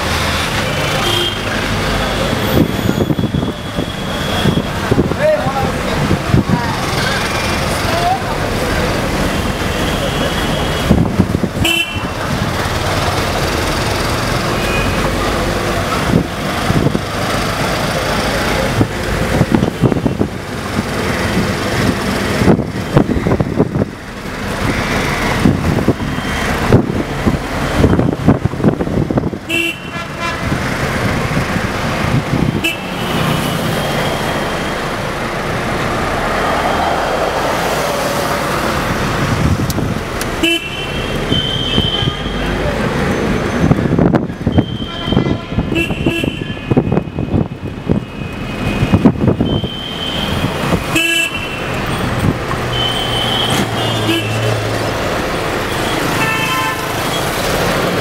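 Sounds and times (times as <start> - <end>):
car and road rumble: 0.0 - 58.0
car horn honks: 0.9 - 1.6, 11.6 - 12.2, 14.6 - 15.2, 29.5 - 30.5, 32.6 - 33.5, 40.4 - 42.6, 44.5 - 47.4, 48.7 - 51.8, 52.7 - 54.6, 55.9 - 57.2.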